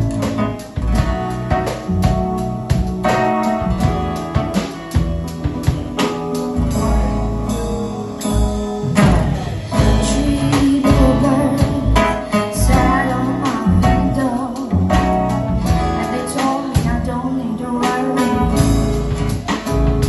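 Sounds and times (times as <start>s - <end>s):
drum kit: 0.0s - 20.0s
keyboard: 0.0s - 20.0s
woman singing into a microphone: 9.0s - 18.9s.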